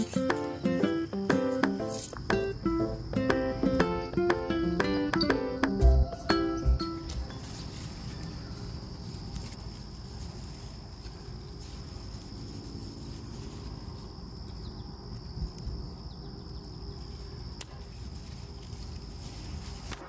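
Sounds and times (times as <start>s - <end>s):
rustling handling noise: 0.0s - 0.6s, 7.0s - 14.6s, 17.7s - 20.0s
insects trilling: 0.0s - 20.0s.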